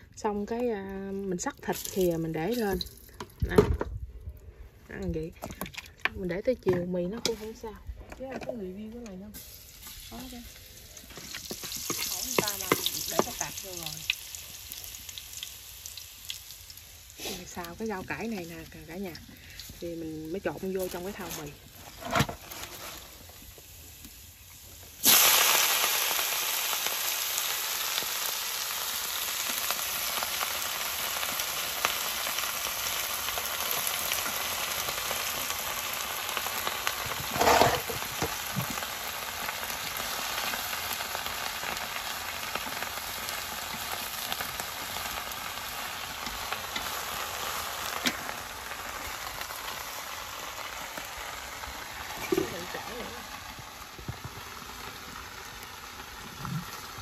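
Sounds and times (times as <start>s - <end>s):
garlic sizzling in a wok: 0.0s - 3.6s, 4.9s - 57.0s
vegetables hitting hot wok: 9.3s - 15.5s, 25.0s - 28.3s, 33.4s - 48.6s.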